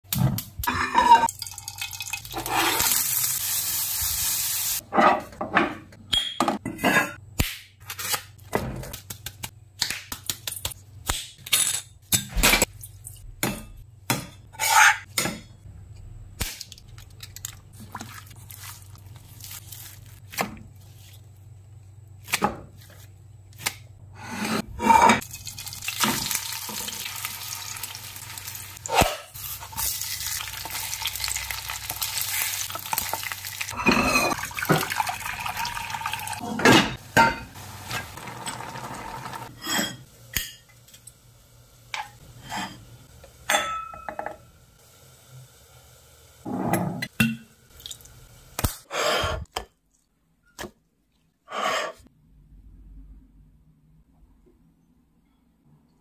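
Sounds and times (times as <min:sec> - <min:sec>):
oil sizzling in frying pan: 0:01.2 - 0:04.8, 0:25.2 - 0:36.4, 0:37.0 - 0:46.5.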